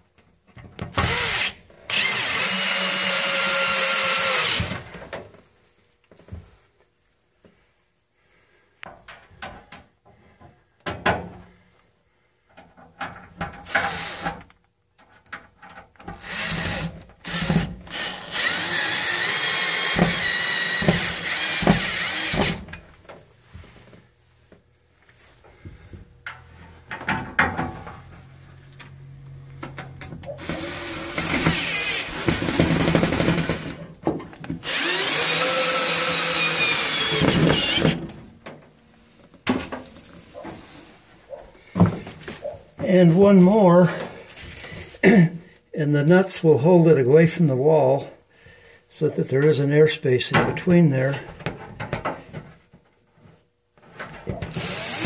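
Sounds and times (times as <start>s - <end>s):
power drill driving screws into metal: 0.9s - 5.0s, 13.6s - 14.5s, 16.0s - 22.8s, 30.4s - 33.8s, 34.6s - 38.2s, 54.4s - 55.0s.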